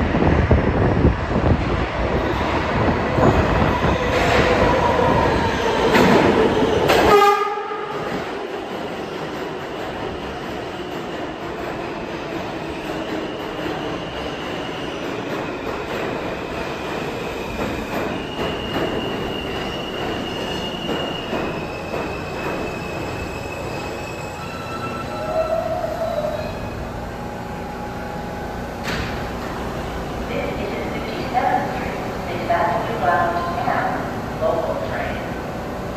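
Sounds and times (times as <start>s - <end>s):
subway train wheels rumbling: 0.0s - 35.9s
train brakes squealing: 12.6s - 15.6s, 17.0s - 26.8s.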